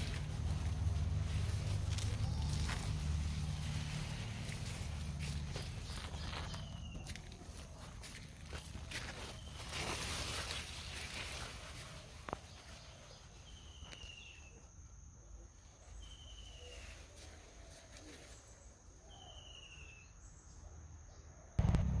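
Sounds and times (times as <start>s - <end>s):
whistled bird calls: 15.9s - 17.1s, 19.0s - 20.2s
loud low rumble: 21.6s - 22.0s.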